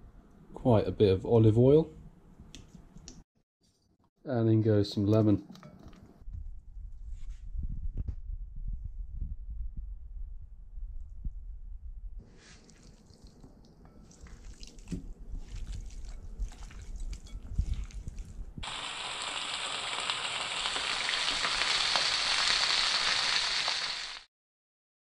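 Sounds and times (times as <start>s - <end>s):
hands squishing wet fish: 12.3s - 18.6s
fish sizzling in oil: 18.6s - 24.3s.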